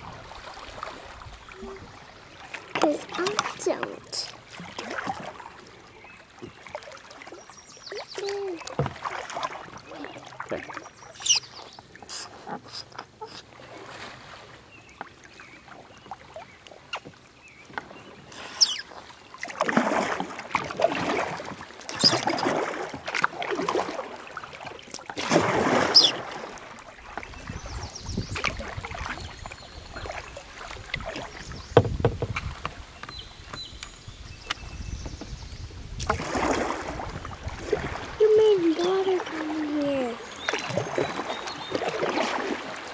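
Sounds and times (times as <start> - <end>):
paddle splashing through water: 0.0 - 42.9
sharp knocks and clicks: 31.8 - 33.6.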